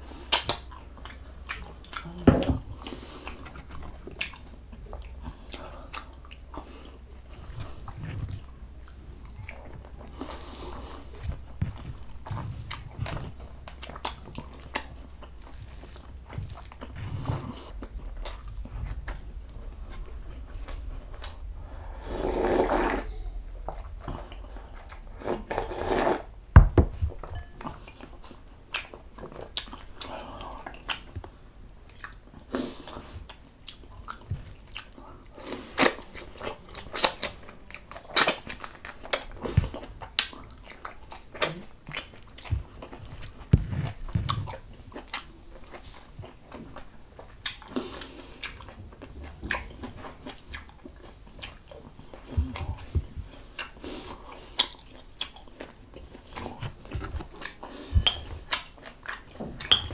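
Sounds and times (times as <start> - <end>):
person chewing and biting: 2.8 - 21.6, 31.9 - 59.9.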